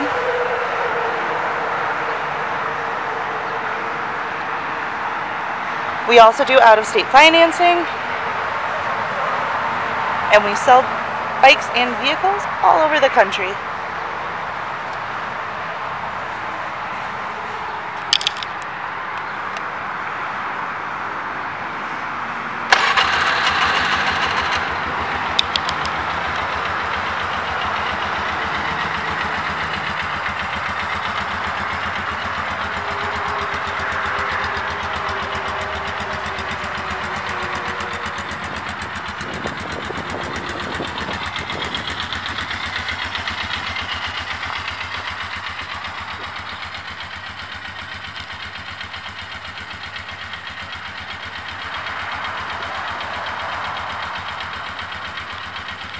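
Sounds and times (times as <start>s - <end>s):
atv engine starting and idling: 22.7s - 55.9s.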